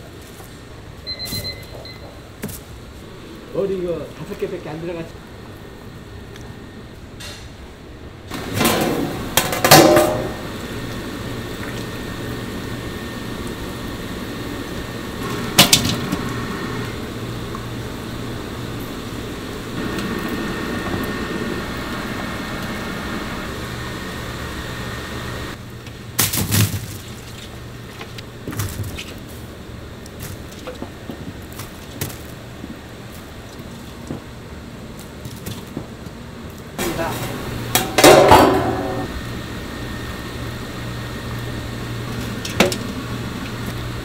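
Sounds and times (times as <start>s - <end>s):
background hum: 0.0s - 44.0s
metal bowls and strainer clattering: 9.5s - 10.4s, 37.7s - 39.1s.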